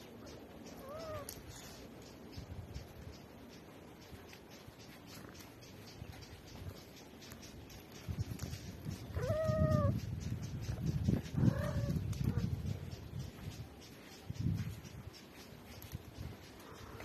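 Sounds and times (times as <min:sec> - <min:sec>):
cat meowing: 0:00.8 - 0:01.4, 0:09.2 - 0:10.0.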